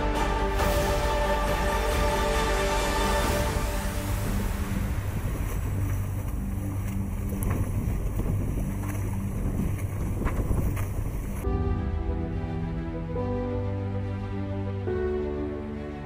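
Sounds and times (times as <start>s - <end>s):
water splashing: 0.0s - 11.5s
boat engine hum: 0.0s - 16.0s
wind buffeting microphone: 3.6s - 11.5s.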